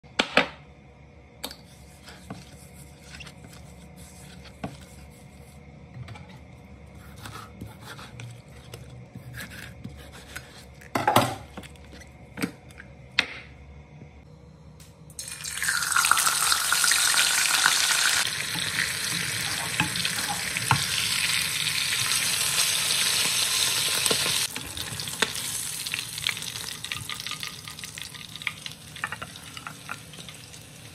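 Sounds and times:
fish deep-frying in hot oil: 15.2s - 30.9s.

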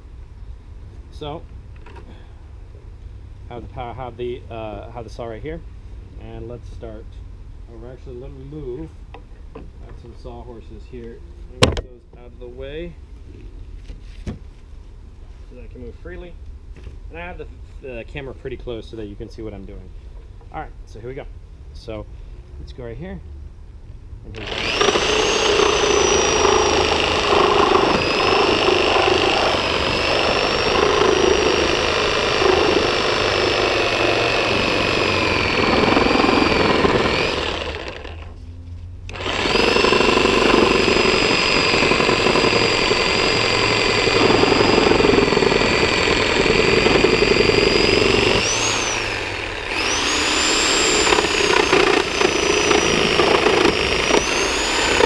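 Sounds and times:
reciprocating saw cutting wood: 24.4s - 38.4s, 39.1s - 55.0s.

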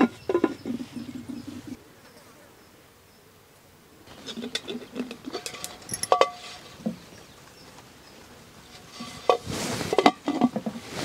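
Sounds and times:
earthenware lids clinking on clay pots: 4.1s - 6.7s.

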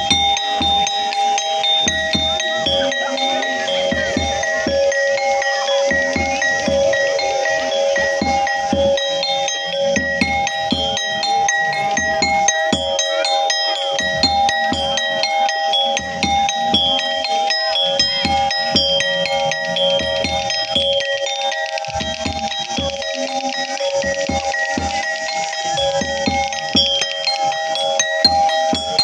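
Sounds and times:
drum beats: 0.0s - 29.0s
metallic mallet percussion: 0.0s - 29.0s
steady held tones: 0.0s - 29.0s.

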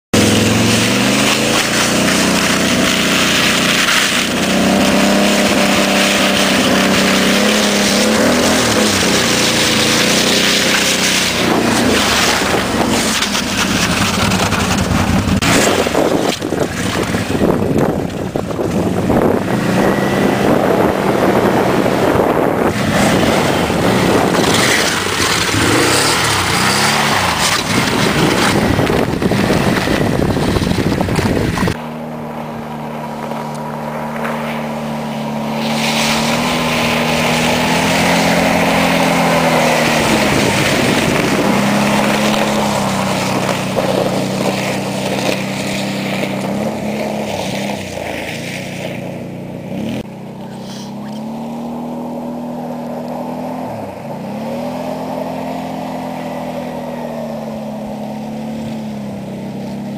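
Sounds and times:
atv engine running: 0.1s - 59.9s
wind noise on microphone: 0.4s - 31.8s, 34.9s - 50.1s.

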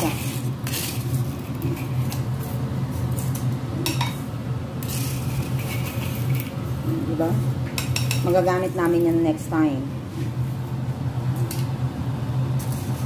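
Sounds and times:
utensil scraping salt in wok: 0.0s - 3.1s, 4.8s - 6.4s.

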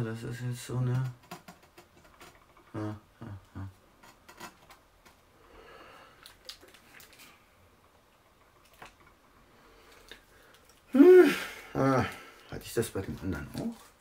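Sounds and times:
man humming: 2.7s - 3.8s, 10.9s - 12.2s.

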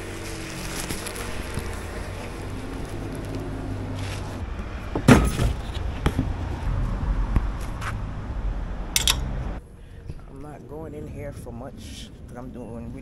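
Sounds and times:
low outdoor rumble: 0.0s - 13.0s
metal gate clattering: 9.0s - 9.3s.

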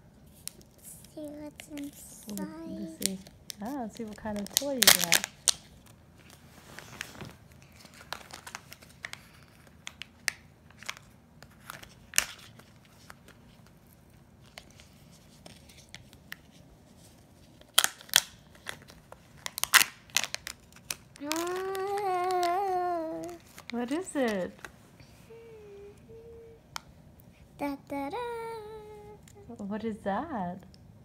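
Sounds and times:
foil and plastic wrapper crinkling: 0.3s - 24.8s.

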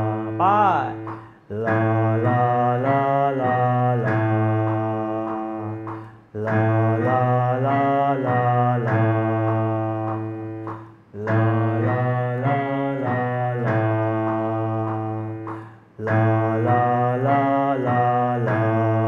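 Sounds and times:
backing chords: 0.0s - 19.0s
man singing vocal warm-up: 0.0s - 19.0s.

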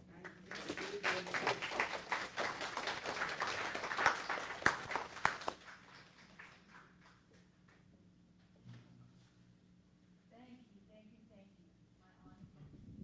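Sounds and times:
congregation applauding: 0.0s - 7.4s.

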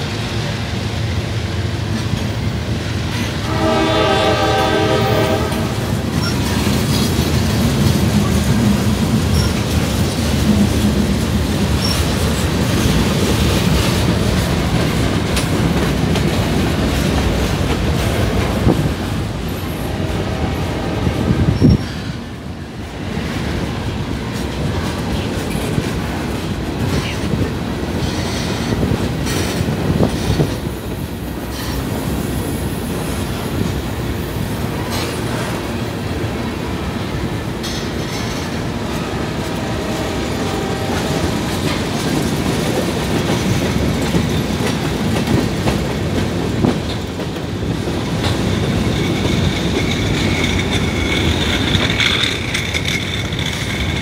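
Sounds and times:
train wheels rumbling on rails: 0.0s - 54.0s
wheels clicking over rail joints: 5.2s - 19.2s, 40.8s - 54.0s.

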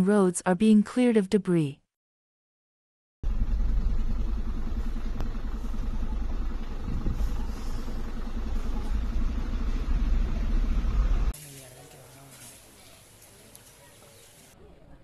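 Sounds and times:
car engine and road rumble: 3.2s - 11.4s.

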